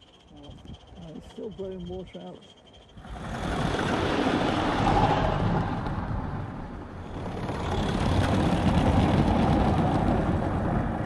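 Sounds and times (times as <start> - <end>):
model train wagons rolling on track: 6.9 - 11.0.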